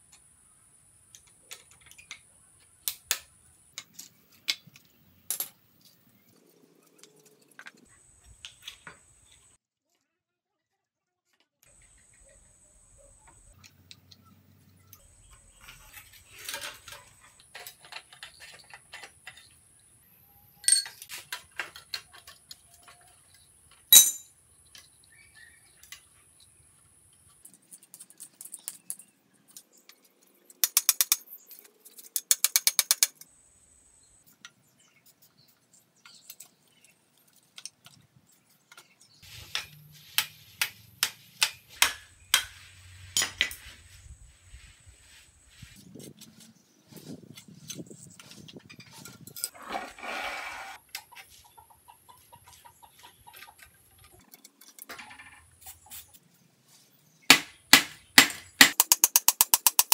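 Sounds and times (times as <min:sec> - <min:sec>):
metal tools clinking on bicycle frame: 0:20.6 - 0:22.3, 0:23.9 - 0:24.4
hammer striking metal: 0:24.0 - 0:24.3
rapid metallic clicking: 0:58.6 - 0:59.9.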